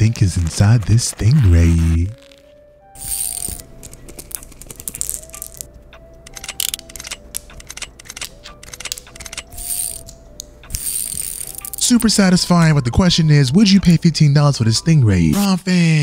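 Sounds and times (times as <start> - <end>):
metal cylinders clicking on metal disc: 3.0 - 12.1.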